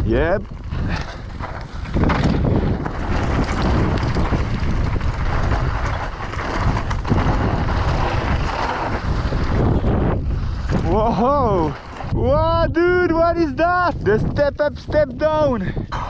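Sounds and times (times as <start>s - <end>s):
bike tyres crunching on rocks: 0.0s - 15.4s
wind buffeting microphone: 0.0s - 16.0s.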